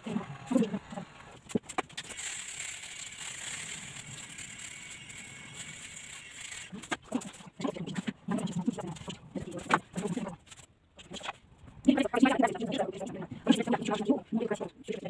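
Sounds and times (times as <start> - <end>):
electric hair clipper running: 2.2 - 6.7.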